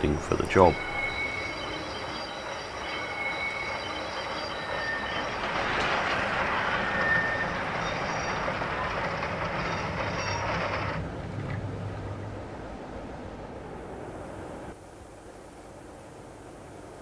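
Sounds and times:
wheel flanges squealing on rails: 0:00.0 - 0:11.0
model train running: 0:00.0 - 0:11.1.

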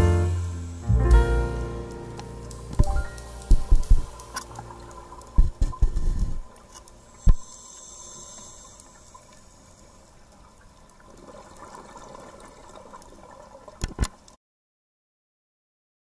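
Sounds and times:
muffled underwater hiss: 0:00.0 - 0:14.3.

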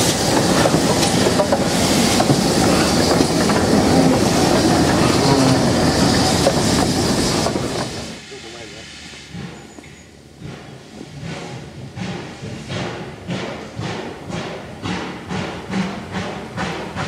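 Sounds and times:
wheels clicking over rail joints: 0:00.0 - 0:05.5
train wheels rumbling on rail: 0:00.0 - 0:17.0.

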